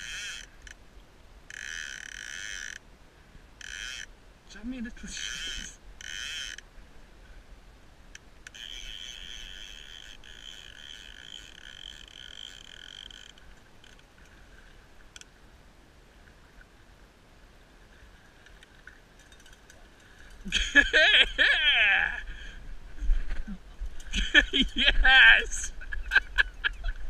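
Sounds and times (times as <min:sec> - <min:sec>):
fly reel ratchet clicking: 0:00.0 - 0:00.8, 0:01.5 - 0:02.8, 0:03.6 - 0:04.1, 0:05.2 - 0:06.6, 0:08.4 - 0:14.0.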